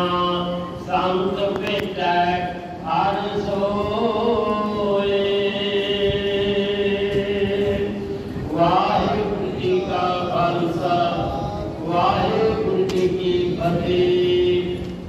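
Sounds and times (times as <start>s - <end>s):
man chanting: 0.0s - 15.0s.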